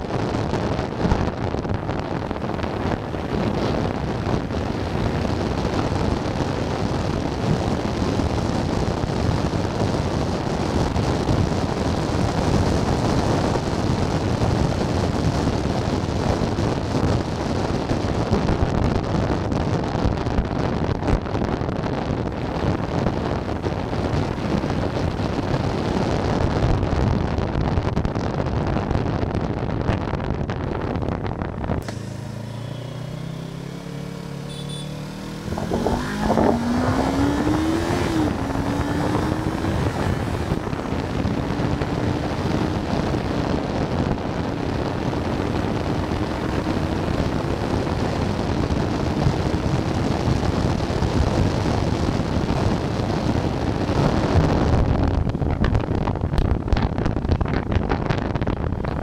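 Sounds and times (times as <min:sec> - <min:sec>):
wind buffeting microphone: 0:00.0 - 0:32.2, 0:35.2 - 0:59.0
motorcycle engine revving: 0:31.8 - 0:51.6.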